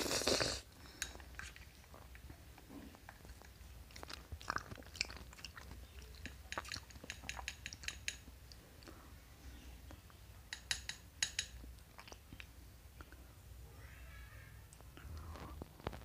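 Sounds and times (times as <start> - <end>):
plastic spoon tapping a bowl: 10.5 - 11.6.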